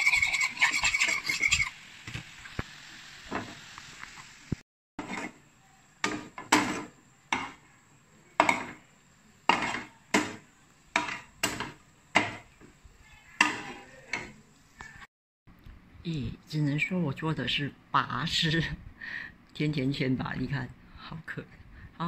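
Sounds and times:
spatula scraping frying pan: 0.0 - 2.3, 5.0 - 5.4, 6.0 - 7.6, 8.4 - 8.9, 9.5 - 12.6, 13.4 - 14.4.

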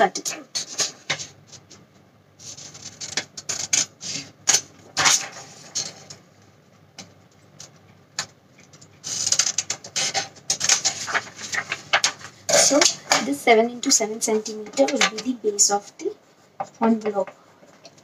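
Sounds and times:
paper rustling: 0.5 - 6.2, 8.6 - 13.4.

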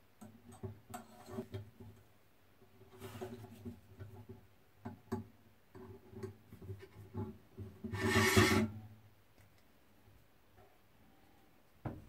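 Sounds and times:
metal-on-metal scrape: 0.9 - 1.6, 7.8 - 8.8.

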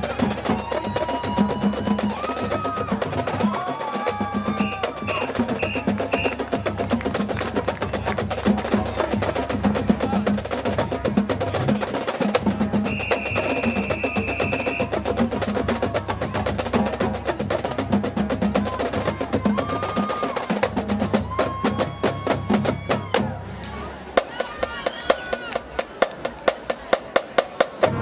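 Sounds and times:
marching band percussion: 0.0 - 23.4, 24.2 - 28.0
held high tone: 4.6 - 6.4.

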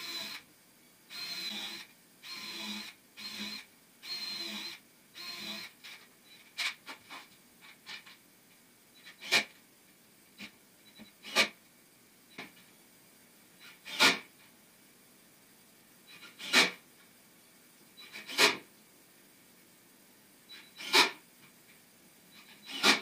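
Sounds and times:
cordless drill driving screws: 0.0 - 0.4, 1.1 - 5.8, 22.4 - 23.0.

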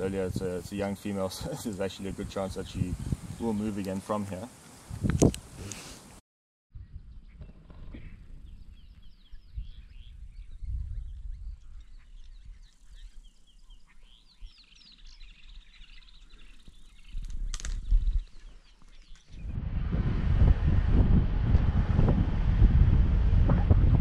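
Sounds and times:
birds chirping: 6.8 - 19.5
low rumble: 19.4 - 24.0
rush of noise: 19.4 - 24.0.

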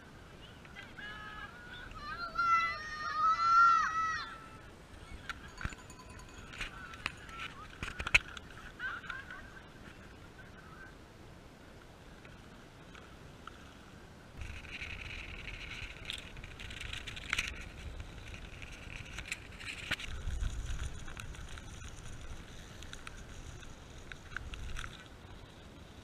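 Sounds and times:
bike rattles and clicks: 5.2 - 9.4, 14.4 - 26.0
bike rumbling over bumpy grass: 14.4 - 25.6.

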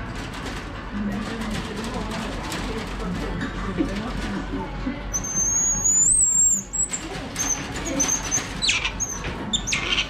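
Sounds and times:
monkey whistle call: 5.2 - 6.9
monkey squeaks: 5.2 - 10.0.

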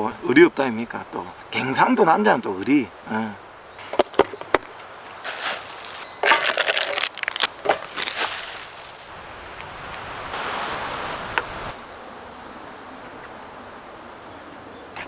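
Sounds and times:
knocks and rustling: 3.8 - 9.1
steady hiss: 7.6 - 14.2.

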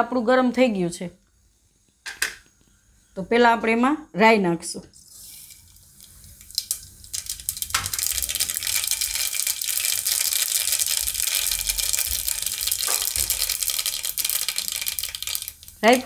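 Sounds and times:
seeds sizzling in hot oil: 4.9 - 16.0.

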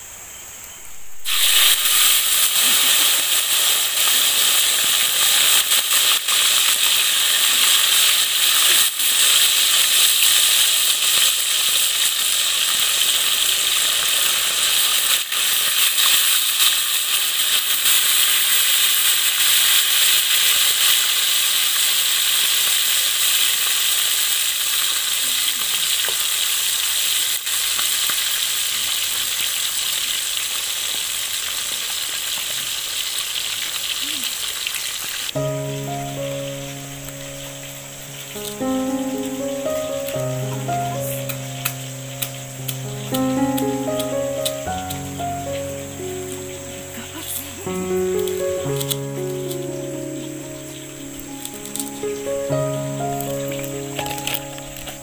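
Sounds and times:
food sizzling in hot oil: 0.8 - 55.0
faint clicks: 41.2 - 45.0.

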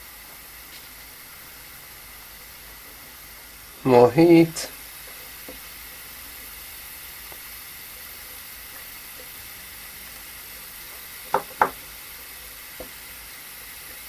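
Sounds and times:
gas soldering iron hissing: 0.0 - 14.0
sharp knocks: 11.3 - 11.8.

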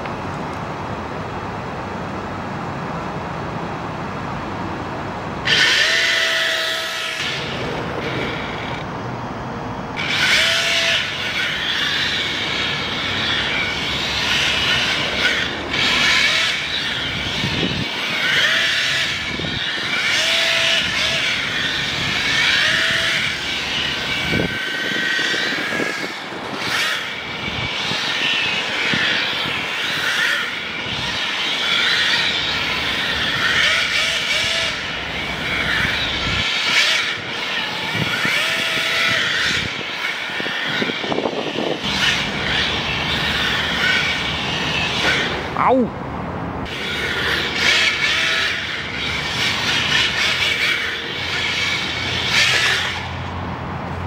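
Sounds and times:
electric motor whining: 5.4 - 8.8, 10.0 - 45.4
tyres scrubbing on asphalt: 46.7 - 53.3.

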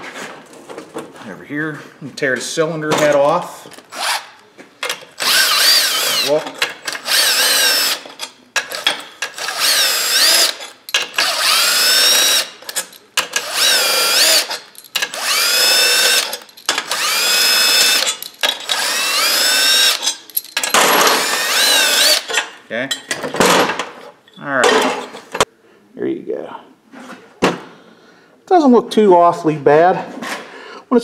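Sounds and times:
power drill whining: 5.2 - 12.7, 13.4 - 20.2, 21.1 - 22.3.

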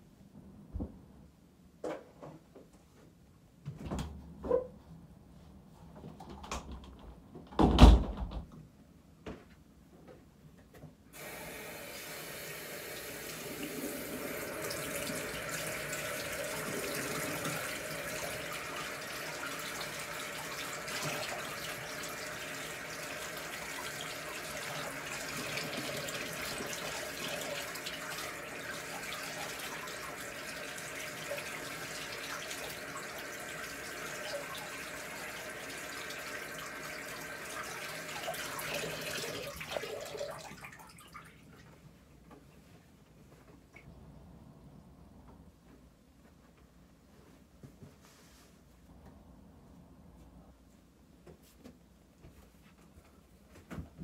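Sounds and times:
sink tap running: 11.2 - 40.4.

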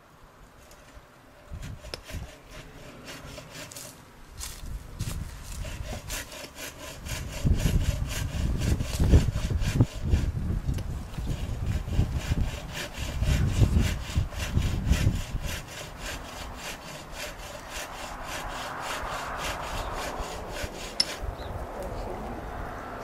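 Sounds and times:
handsaw cutting wood: 1.4 - 10.4, 11.1 - 21.3.

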